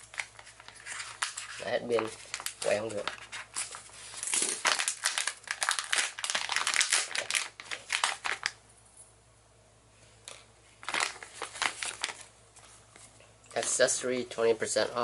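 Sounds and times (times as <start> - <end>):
plastic pouch crinkling: 0.0 - 8.6, 10.8 - 12.3.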